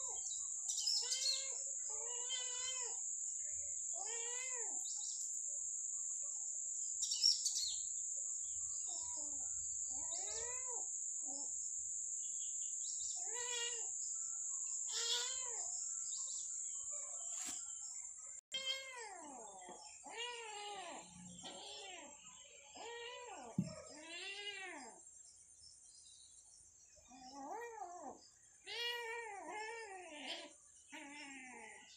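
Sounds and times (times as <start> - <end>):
kittens mewing: 1.0 - 3.0, 13.2 - 14.0, 14.9 - 15.6, 18.5 - 22.2.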